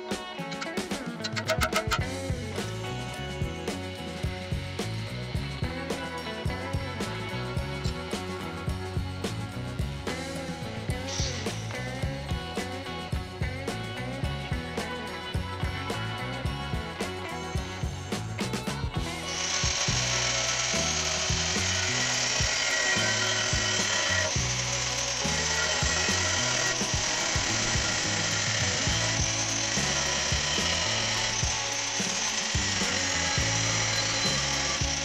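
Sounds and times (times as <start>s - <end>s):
background music with bass: 0.0s - 35.0s
angle grinder cutting steel: 0.1s - 4.0s, 10.1s - 13.0s, 19.0s - 35.0s.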